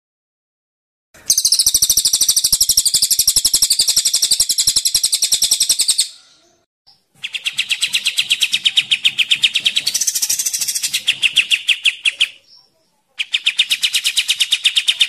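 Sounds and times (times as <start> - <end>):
songbird trilling: 1.3 - 6.3, 6.9 - 15.0.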